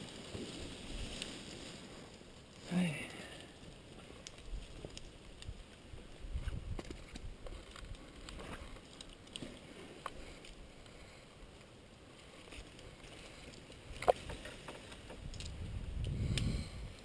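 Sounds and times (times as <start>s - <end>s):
rustling and handling noise: 0.0s - 16.1s
small clicks: 12.4s - 17.0s.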